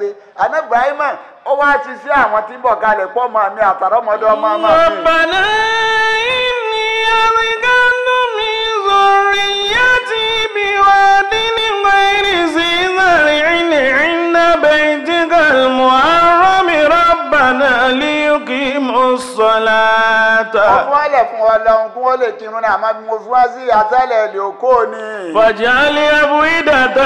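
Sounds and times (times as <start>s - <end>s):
man chanting: 0.0s - 27.0s
breaths: 0.1s - 0.4s, 1.2s - 1.5s.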